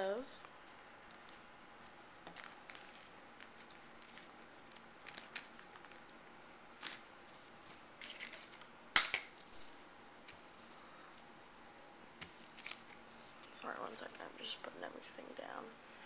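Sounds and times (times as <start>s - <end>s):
paper packaging rustling: 1.1s - 6.2s, 6.8s - 8.7s, 9.3s - 14.6s.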